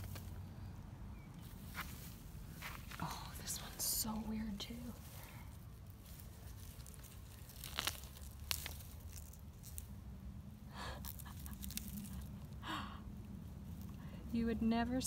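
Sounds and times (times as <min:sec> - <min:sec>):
roots snapping: 0:00.0 - 0:00.4, 0:04.5 - 0:10.2, 0:11.0 - 0:12.6
leaves rustling: 0:00.0 - 0:00.7, 0:01.4 - 0:12.6
soil crunching: 0:00.0 - 0:12.6
low steady rumble: 0:00.0 - 0:15.0.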